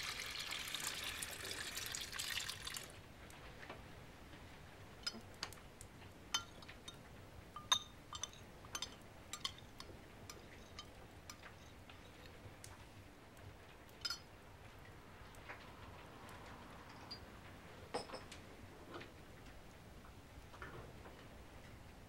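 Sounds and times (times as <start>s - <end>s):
teaspoon clinking in china cup: 6.4s - 7.0s, 7.6s - 12.2s.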